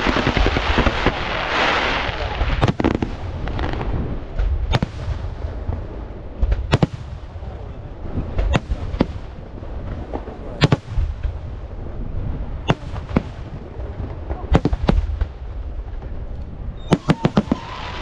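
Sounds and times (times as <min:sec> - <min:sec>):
low rumble: 0:00.0 - 0:18.0
firework shells bursting: 0:16.8 - 0:18.0.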